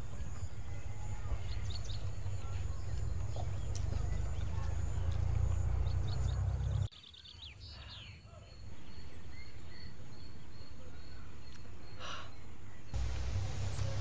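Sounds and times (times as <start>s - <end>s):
bird chirps: 0.0s - 14.0s
low rumble: 8.6s - 14.0s.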